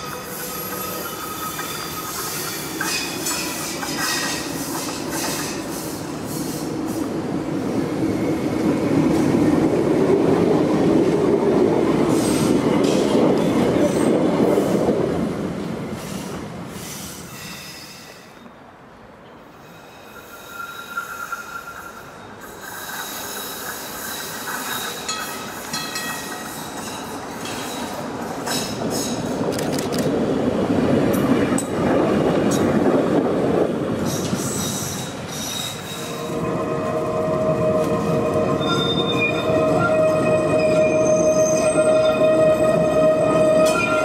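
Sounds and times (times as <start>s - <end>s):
tram wheels squealing on curve: 0.0s - 8.9s, 16.0s - 18.5s, 19.6s - 29.4s, 34.0s - 44.0s
tram wheels rumbling on rails: 0.0s - 44.0s.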